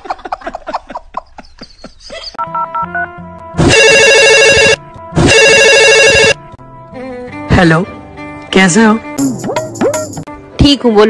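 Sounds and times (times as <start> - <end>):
man laughing: 0.0 - 2.4
phone ringtone: 2.4 - 6.4.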